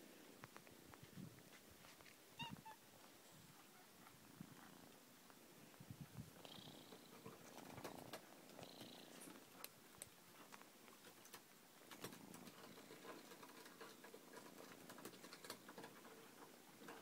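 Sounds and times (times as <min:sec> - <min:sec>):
cat purring: 0:06.3 - 0:09.6, 0:12.2 - 0:17.0.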